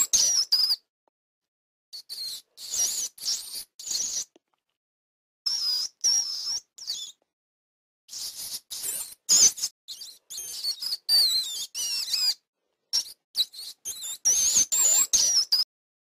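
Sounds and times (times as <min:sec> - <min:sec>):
rat squeaking: 0:00.0 - 0:00.8, 0:02.0 - 0:04.3, 0:05.5 - 0:07.2, 0:08.1 - 0:15.7.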